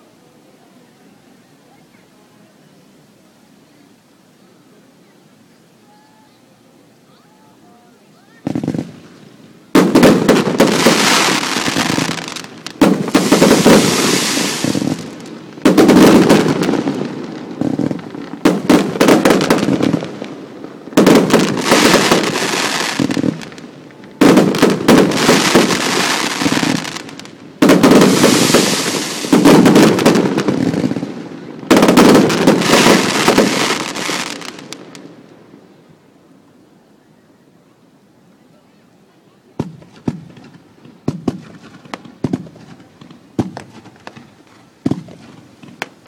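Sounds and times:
fireworks exploding and crackling: 8.4 - 35.6, 39.6 - 46.0.

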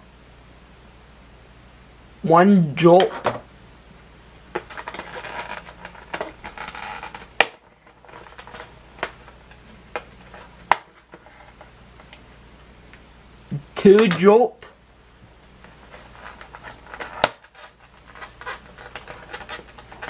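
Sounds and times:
packaging rustling and crinkling: 4.6 - 11.7, 15.7 - 20.0.

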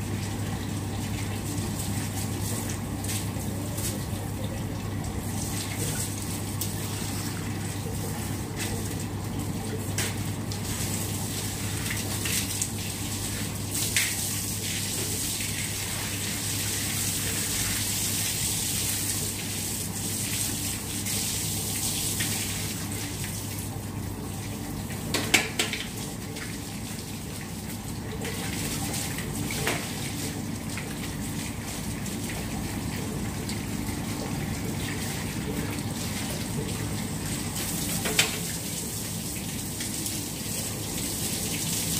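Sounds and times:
water spraying from garden hose: 0.2 - 4.2, 10.0 - 23.5, 37.0 - 41.9.

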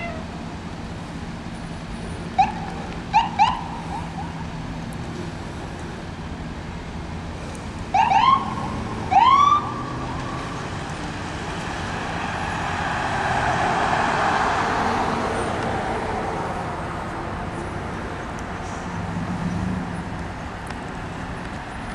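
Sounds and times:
ambulance siren whoops: 2.4 - 4.4, 7.9 - 10.5
ambulance driving past: 7.9 - 20.6.

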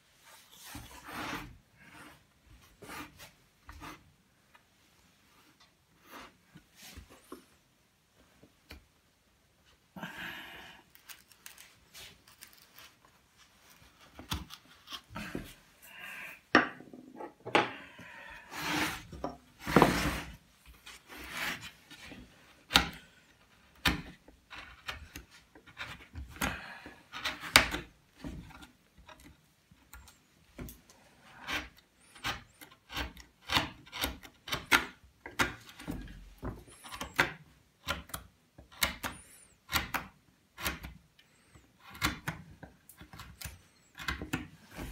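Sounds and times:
carving tools scraping wood: 0.5 - 4.1, 6.0 - 6.4, 13.6 - 16.3, 18.4 - 22.9, 23.5 - 30.2, 31.2 - 44.9.

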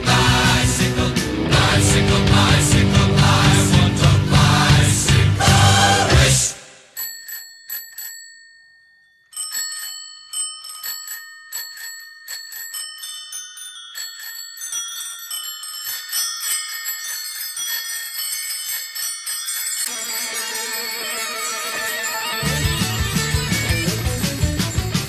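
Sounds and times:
bicycle bells ringing: 6.9 - 25.0.

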